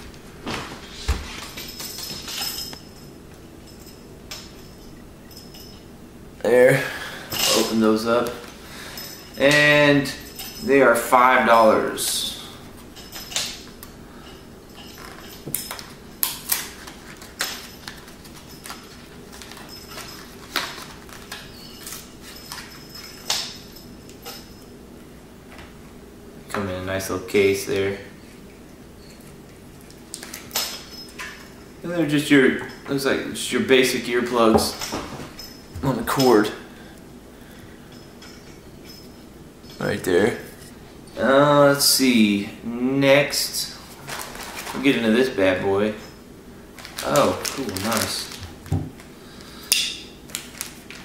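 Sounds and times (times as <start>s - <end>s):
plastic package crinkling: 43.9s - 45.0s, 46.7s - 49.1s, 50.3s - 51.0s
plastic package cracking: 46.8s - 48.7s.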